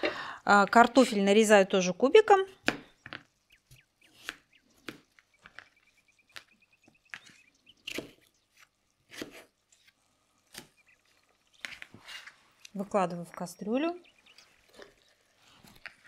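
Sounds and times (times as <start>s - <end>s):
knife cutting on cutting board: 9.1s - 9.5s.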